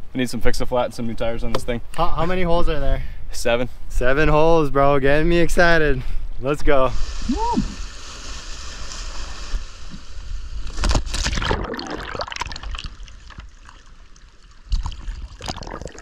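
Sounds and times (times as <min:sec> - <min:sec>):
water sloshing and gurgling: 0:10.7 - 0:16.0.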